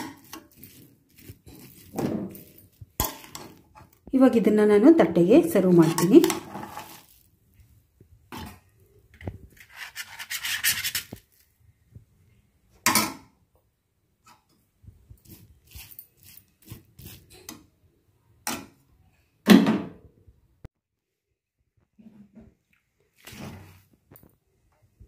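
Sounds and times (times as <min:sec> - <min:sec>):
spoon scraping a pan: 0:00.0 - 0:03.9, 0:05.5 - 0:07.2, 0:09.5 - 0:11.2, 0:15.2 - 0:17.6.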